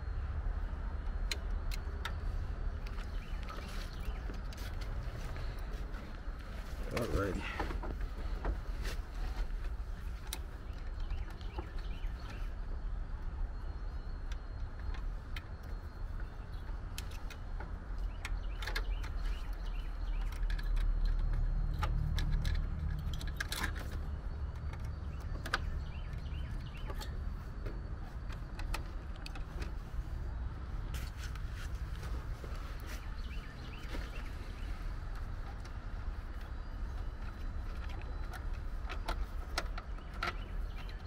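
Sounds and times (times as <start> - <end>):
steady low rumble: 0.0 - 41.0
wires clicking and rattling: 14.7 - 33.0.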